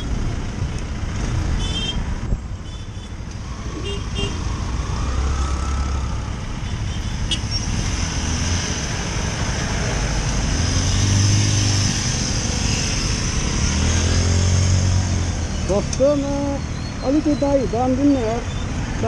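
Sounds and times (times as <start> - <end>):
steady low traffic rumble: 0.0 - 19.0
engine revving: 3.5 - 16.7
vehicle engines idling: 14.7 - 19.0.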